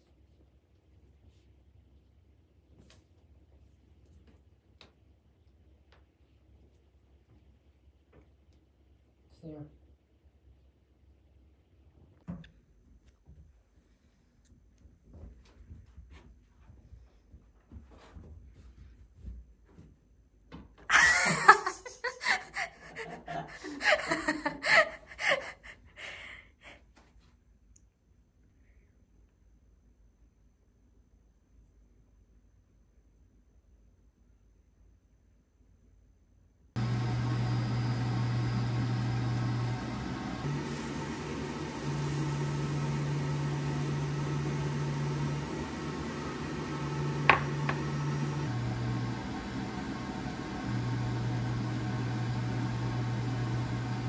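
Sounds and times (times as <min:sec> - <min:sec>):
person laughing: 0:20.9 - 0:26.3
induction cooktop electrical hum: 0:36.8 - 0:54.0.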